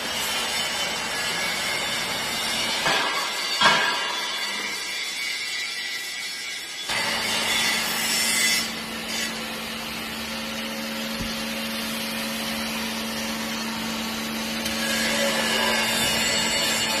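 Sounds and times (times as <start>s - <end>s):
machine hum: 6.9s - 17.0s.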